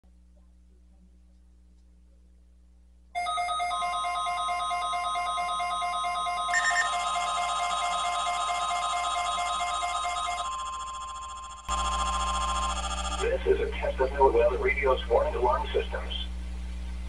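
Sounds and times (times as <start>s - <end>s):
pulsing electronic alarm: 3.2s - 14.1s
long steady warning tone: 3.2s - 16.4s.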